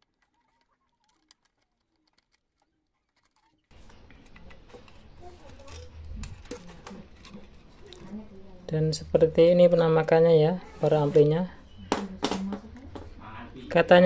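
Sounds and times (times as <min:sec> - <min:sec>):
sharp clicks and rustling: 0:00.0 - 0:08.2.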